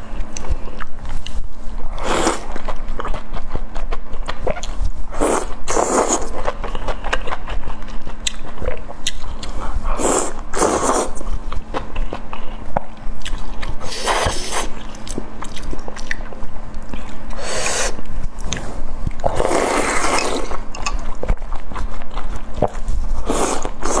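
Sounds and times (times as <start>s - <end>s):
person slurping: 10.0s - 11.2s, 17.4s - 18.0s, 19.3s - 20.6s.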